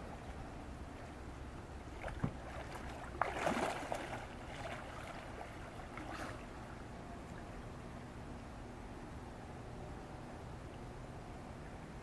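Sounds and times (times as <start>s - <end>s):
water splashing: 1.8s - 7.5s.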